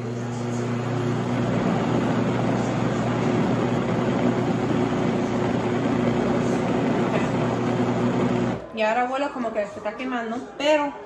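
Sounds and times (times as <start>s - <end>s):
blender motor running: 0.0s - 8.6s.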